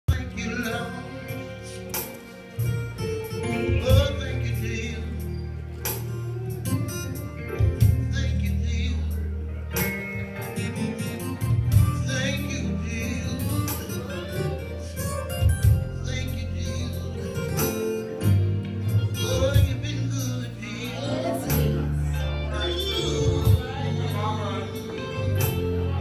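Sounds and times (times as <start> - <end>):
man singing: 0.1 - 2.7, 3.3 - 26.0
low organ notes: 0.1 - 26.0.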